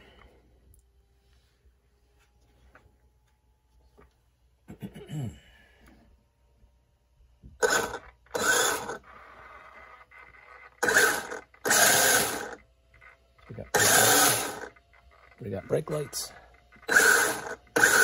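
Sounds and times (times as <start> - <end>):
toy car motor whirring: 7.6 - 18.0.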